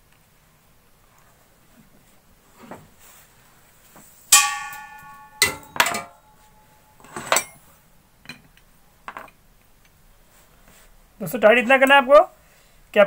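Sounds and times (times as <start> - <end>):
metal tools clanking: 4.3 - 6.4, 7.0 - 7.6
loud ringing clang: 4.3 - 7.6.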